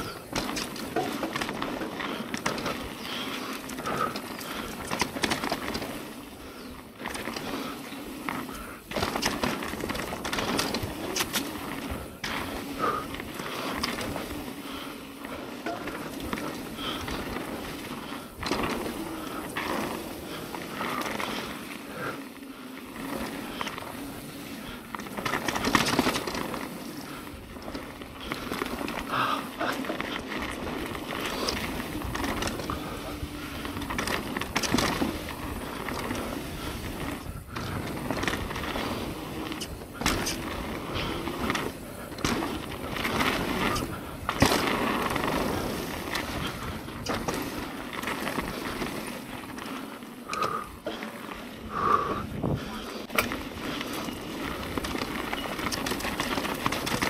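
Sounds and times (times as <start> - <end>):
bike knocking and rattling: 0.0 - 57.0
bike tyres on dirt: 0.0 - 57.0.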